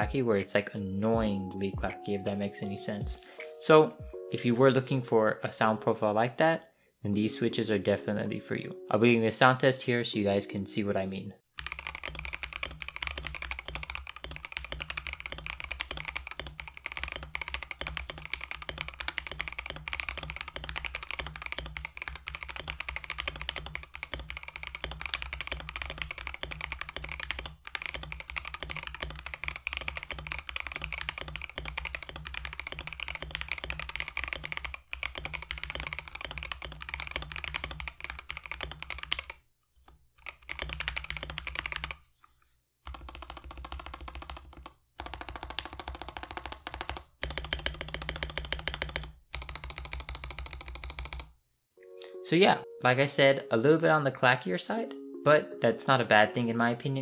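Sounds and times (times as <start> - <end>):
typing on mechanical keyboard: 11.6 - 39.4, 40.2 - 42.0, 42.8 - 51.4.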